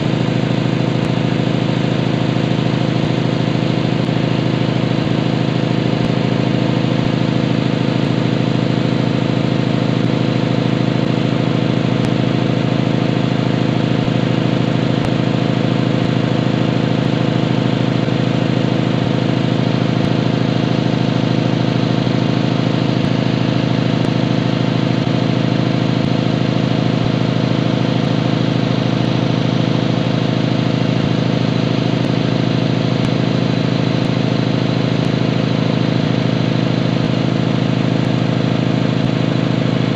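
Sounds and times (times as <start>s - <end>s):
air compressor running: 0.0s - 39.9s.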